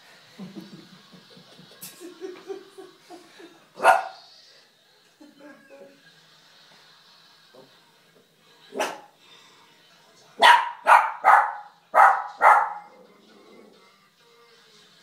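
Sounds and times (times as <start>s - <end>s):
dog barking: 3.8s - 4.2s, 8.8s - 9.1s, 10.4s - 13.0s.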